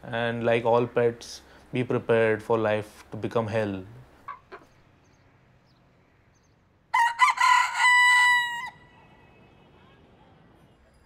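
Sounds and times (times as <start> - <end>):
rooster crowing: 6.9 - 9.2.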